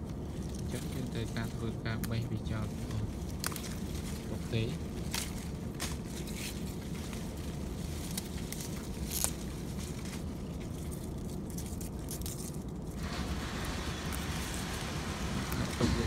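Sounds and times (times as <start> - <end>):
leaves clicking and rustling: 0.0 - 16.0
low rumble: 0.0 - 16.0
hiss: 13.0 - 16.0.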